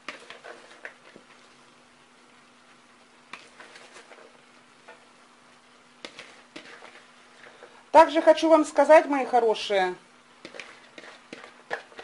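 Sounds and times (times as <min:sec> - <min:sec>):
cabbage rustling into pan: 0:00.0 - 0:01.7, 0:02.7 - 0:05.2, 0:05.8 - 0:07.8, 0:10.3 - 0:12.0.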